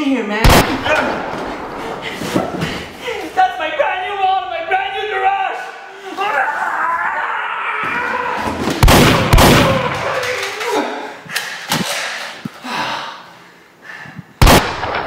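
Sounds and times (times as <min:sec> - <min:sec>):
shotgun blasts: 0:00.4 - 0:03.0, 0:08.8 - 0:10.0, 0:14.4 - 0:15.0.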